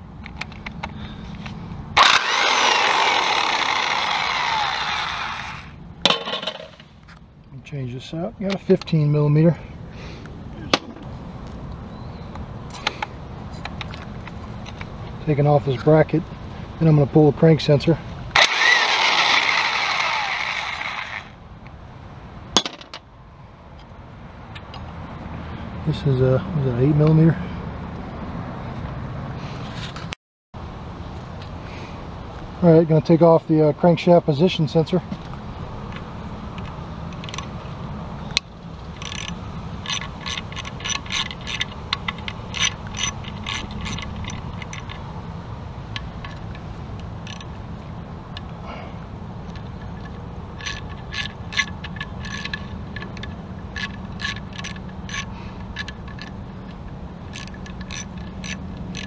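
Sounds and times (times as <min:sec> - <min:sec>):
socket ratchet clicking: 0:36.6 - 0:37.5, 0:38.3 - 0:45.1, 0:45.9 - 0:47.6, 0:49.4 - 0:59.0.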